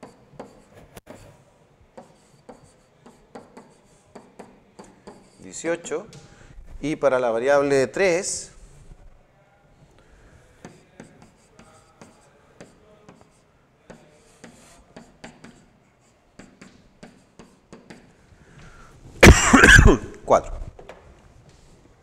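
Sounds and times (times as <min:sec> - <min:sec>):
stylus tapping and scratching on screen: 0:00.0 - 0:07.0, 0:10.5 - 0:18.2.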